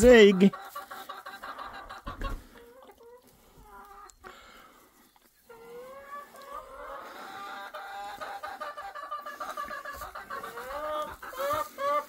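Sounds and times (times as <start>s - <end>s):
hens clucking and calling: 0.0s - 12.0s.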